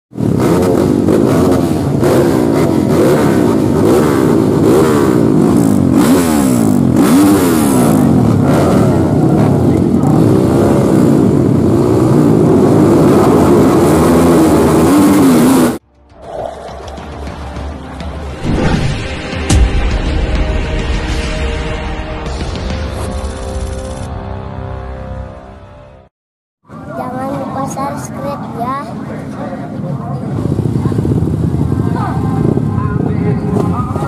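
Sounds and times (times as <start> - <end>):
dirt bike engines revving: 0.2 - 18.2, 27.4 - 34.0.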